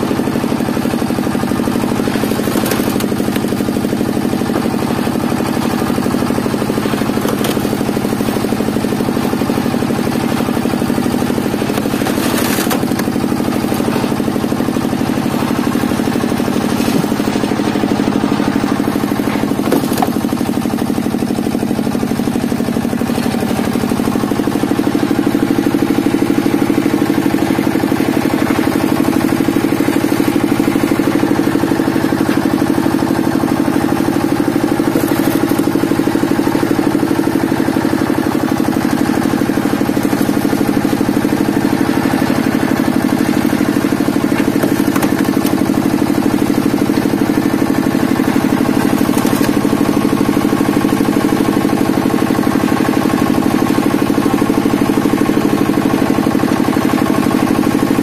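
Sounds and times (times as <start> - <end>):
log splitter engine running: 0.0 - 58.0
logs cracking: 1.6 - 21.3, 28.9 - 37.0, 43.2 - 51.0.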